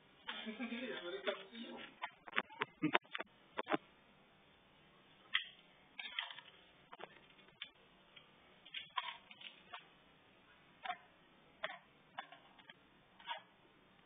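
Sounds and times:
crab claws scrabbling on tile: 5.3s - 7.8s, 8.6s - 9.9s, 11.6s - 13.5s.

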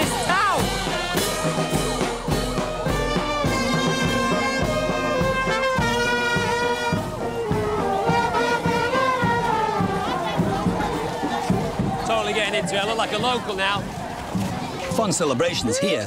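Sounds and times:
brass horns playing melody: 0.0s - 11.2s
steady drumbeats: 0.0s - 15.6s.

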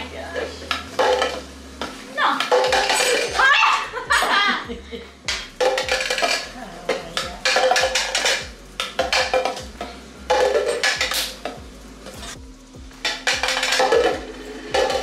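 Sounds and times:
background music with steady beat: 0.0s - 15.0s
plastic cups tapped on stone: 0.7s - 3.4s, 5.3s - 11.6s, 13.0s - 15.0s
butter knives clattering: 0.7s - 3.7s, 5.6s - 6.5s, 7.4s - 9.6s, 10.3s - 11.6s.

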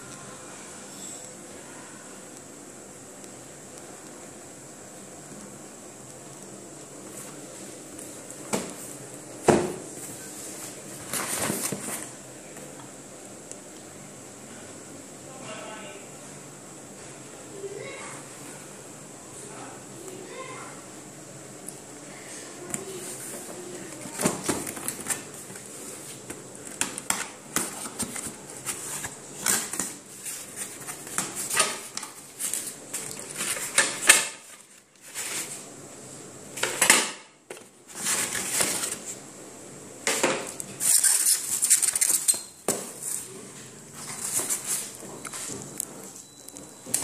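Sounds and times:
packaging rustling: 23.0s - 35.6s, 37.5s - 39.2s, 40.6s - 46.6s.

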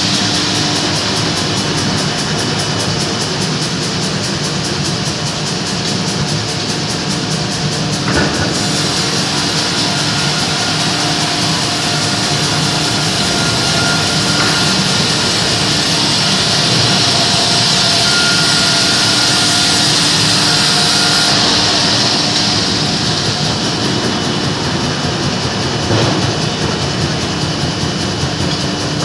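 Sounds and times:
band sawmill running: 0.0s - 29.0s
blade cutting wood hiss: 6.1s - 24.2s.

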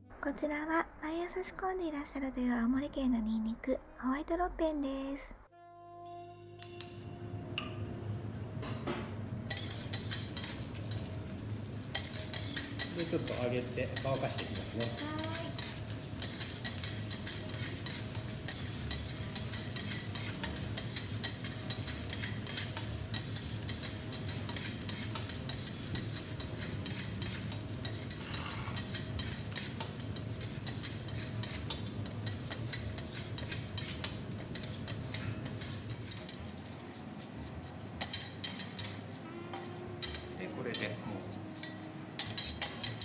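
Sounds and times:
metal spatulas clicking and scraping: 9.5s - 11.1s, 11.9s - 36.5s, 38.0s - 41.0s, 41.6s - 43.0s
garlic sizzling in oil: 9.5s - 36.5s.

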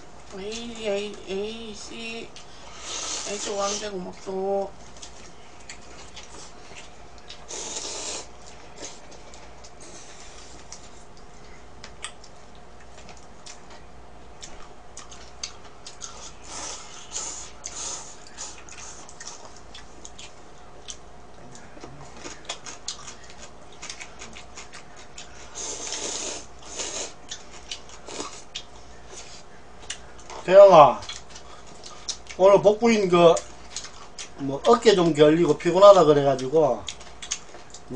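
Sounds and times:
chewing: 2.3s - 30.4s, 31.0s - 32.4s, 33.3s - 35.2s, 36.3s - 37.9s
slurping noodles: 7.5s - 9.0s.

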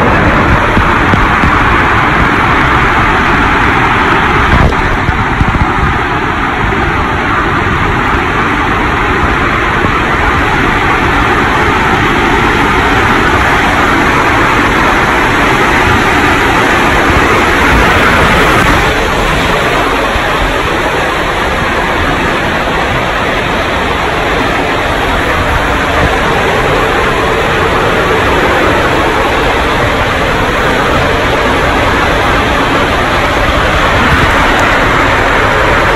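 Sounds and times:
underwater water rushing: 0.0s - 35.9s.

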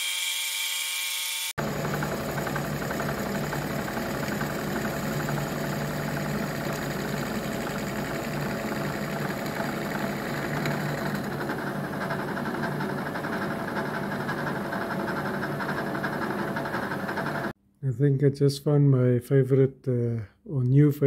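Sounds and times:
grinding disc on metal: 0.7s - 17.5s
milling machine running: 1.6s - 17.6s.

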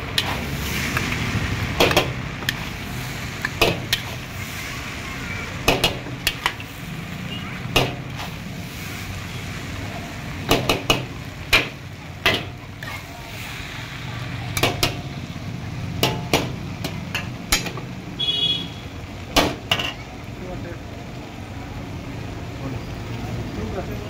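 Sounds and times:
metal ladle clanging on wok: 0.0s - 0.4s, 1.7s - 2.7s, 3.4s - 4.2s, 5.6s - 6.7s, 7.7s - 8.2s, 10.5s - 13.0s, 14.6s - 15.1s, 16.0s - 17.9s, 19.3s - 20.0s.

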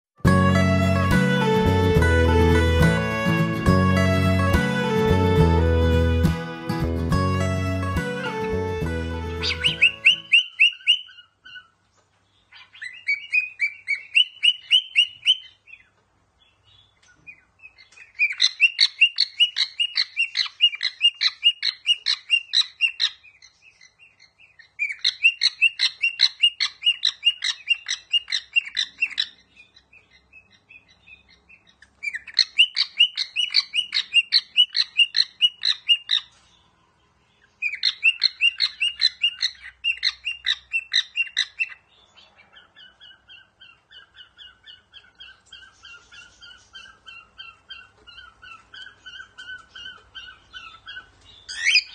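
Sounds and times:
cockatiel chirping: 9.4s - 11.8s, 12.5s - 15.9s, 16.7s - 36.4s, 37.6s - 51.9s.

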